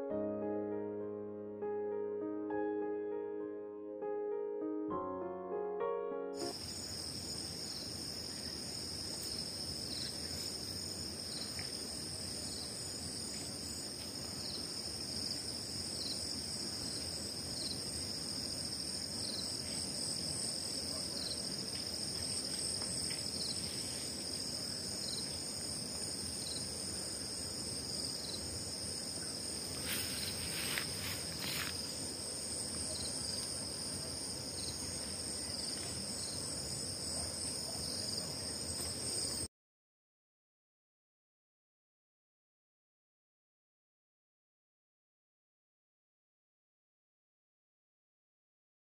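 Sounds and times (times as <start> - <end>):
high-pitched insect chorus: 6.4 - 39.5.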